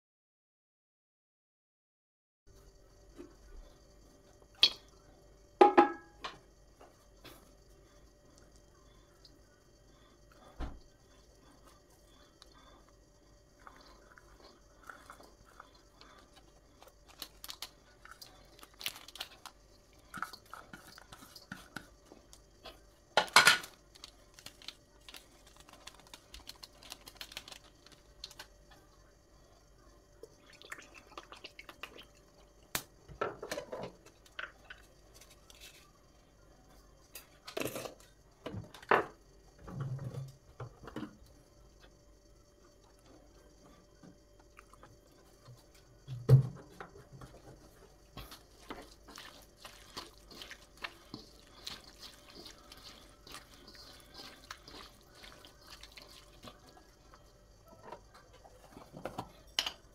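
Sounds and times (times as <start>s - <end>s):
knock on wok: 5.6s - 6.1s.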